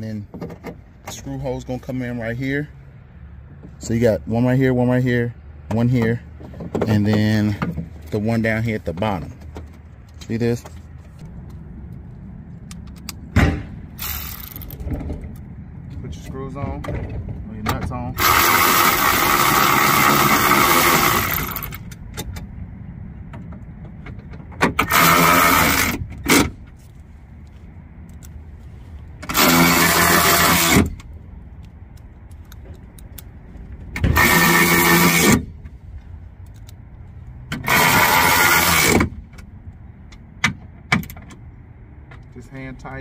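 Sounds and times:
electric ratchet running: 14.0s - 14.8s, 18.2s - 21.8s, 24.8s - 26.0s, 29.3s - 30.9s, 34.1s - 35.5s, 37.6s - 39.0s.

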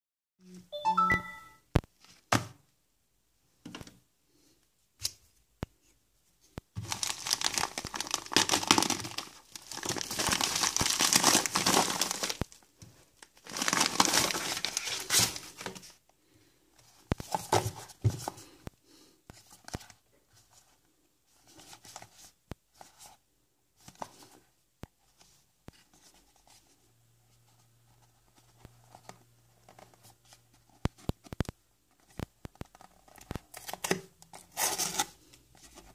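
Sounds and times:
plastic mailer tearing: 6.8s - 12.4s, 13.4s - 15.6s
plastic crinkling: 6.8s - 16.0s
packaging boxes rustling and clicking: 17.1s - 18.4s.

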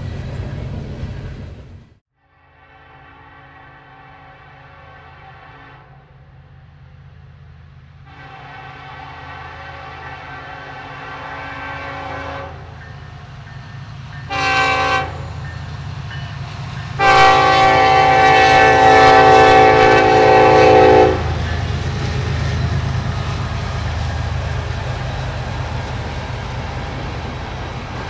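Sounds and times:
freight train rumble: 0.0s - 28.0s
locomotive air horn blasts: 2.4s - 6.4s, 8.1s - 12.8s, 14.3s - 15.4s, 17.0s - 21.5s.

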